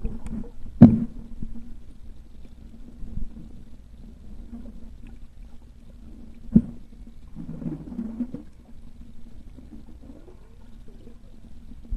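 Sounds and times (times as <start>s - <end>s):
warbling gurgle: 0.0s - 1.2s, 4.3s - 11.9s
low underwater hum: 0.0s - 11.9s.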